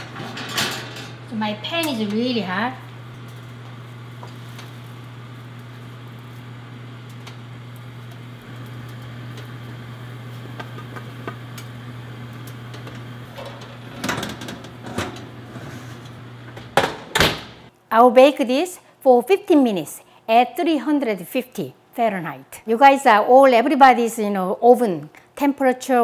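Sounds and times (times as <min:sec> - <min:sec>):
metal oven rack rattling: 0:00.0 - 0:02.6, 0:13.3 - 0:17.6
oven humming: 0:00.0 - 0:17.7.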